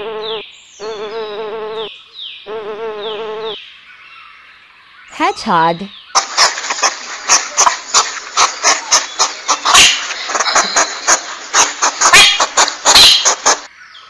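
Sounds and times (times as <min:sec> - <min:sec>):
hedgehog snuffling and huffing: 0:06.2 - 0:13.7.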